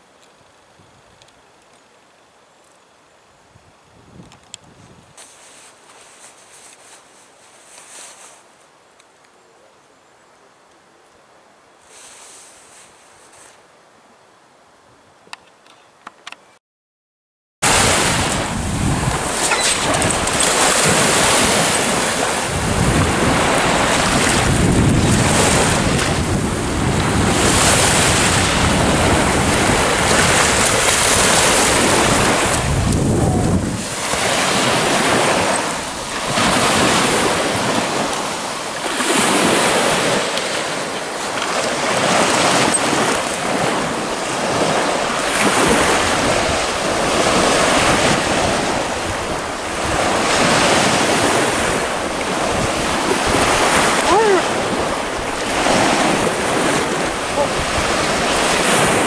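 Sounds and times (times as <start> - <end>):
wind buffeting microphone: 17.6 - 40.3, 41.5 - 59.0
small waves on sandy shore: 17.6 - 59.0.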